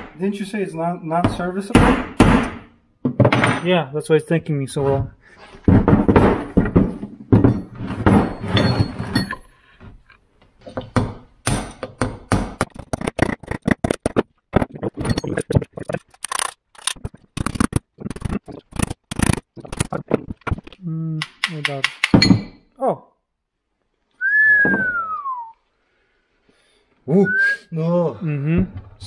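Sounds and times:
steel clattering and scraping: 0:05.3 - 0:09.6.

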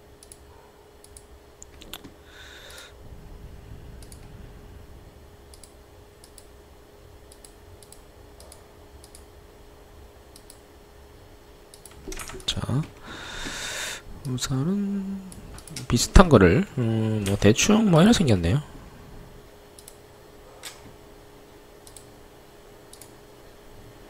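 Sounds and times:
faint hum: 0:00.0 - 0:24.0
computer mouse clicking: 0:00.2 - 0:02.1, 0:04.0 - 0:04.3, 0:05.5 - 0:06.5, 0:07.3 - 0:09.3, 0:10.3 - 0:10.6, 0:11.7 - 0:12.5, 0:19.8 - 0:20.0, 0:21.8 - 0:22.1, 0:22.9 - 0:23.2.

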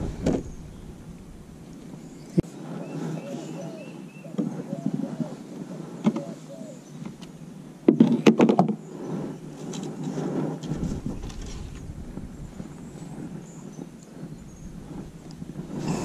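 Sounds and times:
low rumble: 0:00.0 - 0:02.4, 0:10.6 - 0:16.0.

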